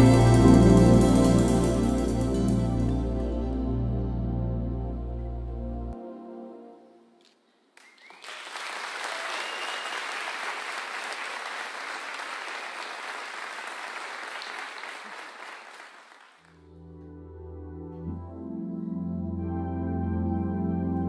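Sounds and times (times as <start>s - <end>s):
soft sustained music: 0.0s - 7.2s, 16.6s - 21.0s
audience applauding: 7.8s - 16.6s.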